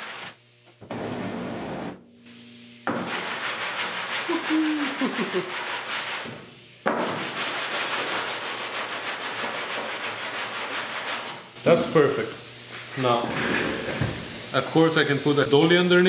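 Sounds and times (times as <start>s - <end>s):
sandpaper rubbing on metal: 0.0s - 0.3s, 2.9s - 6.4s, 7.0s - 11.5s.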